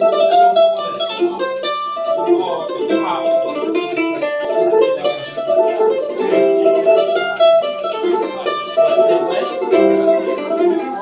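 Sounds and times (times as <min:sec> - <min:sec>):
mandolin quick picked notes: 0:00.0 - 0:11.0.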